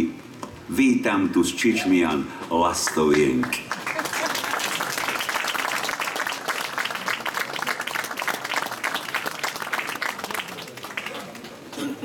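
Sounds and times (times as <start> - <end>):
audience applauding: 2.8 - 11.9.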